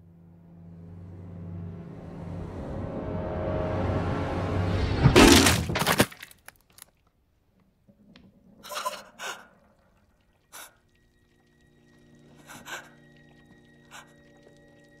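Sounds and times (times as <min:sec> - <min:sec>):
music: 0:00.0 - 0:05.1, 0:10.9 - 0:15.0
sharp gasps: 0:08.7 - 0:09.8, 0:10.5 - 0:10.8, 0:12.4 - 0:13.0, 0:13.9 - 0:14.2.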